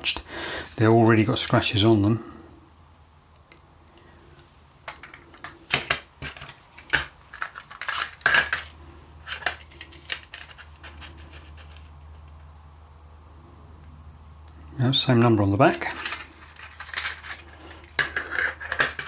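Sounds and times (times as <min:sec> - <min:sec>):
plastic cases clicking: 0:04.9 - 0:08.7, 0:09.3 - 0:11.8, 0:15.7 - 0:19.0.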